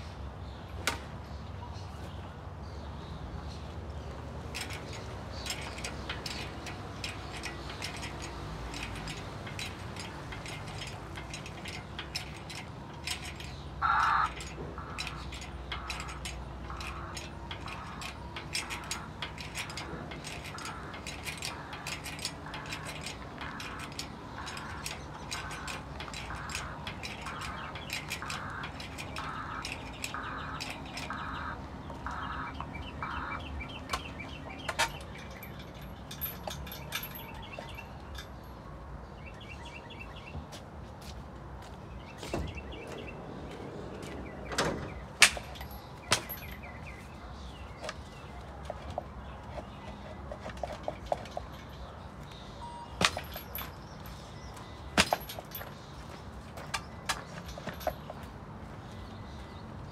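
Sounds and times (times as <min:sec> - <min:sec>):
hydraulic hoist squeaking: 0:04.4 - 0:38.5, 0:44.0 - 0:59.9.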